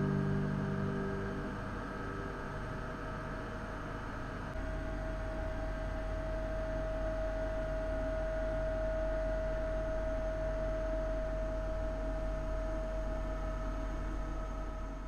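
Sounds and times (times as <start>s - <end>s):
steady pure tone: 0.0s - 5.0s
faint low hum: 0.0s - 15.0s.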